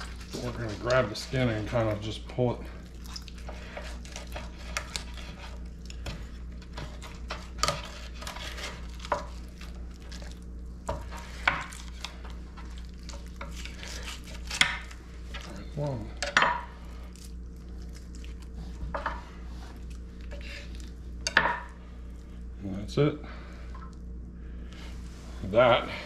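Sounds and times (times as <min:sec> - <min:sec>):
steady low hum: 0:00.0 - 0:26.0
knife scraping a wooden board: 0:03.5 - 0:05.6, 0:06.7 - 0:08.8.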